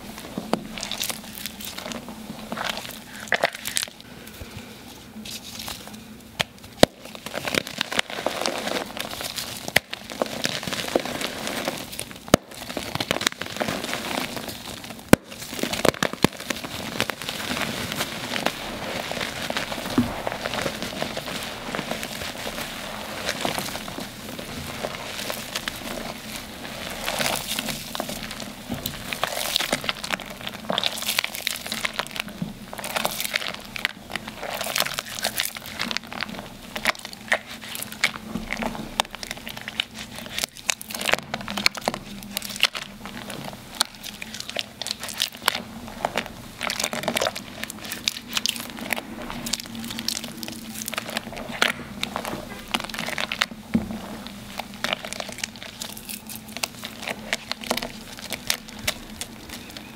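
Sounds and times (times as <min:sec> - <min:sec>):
wet chalk crackling and crunching: 0:00.0 - 0:59.9.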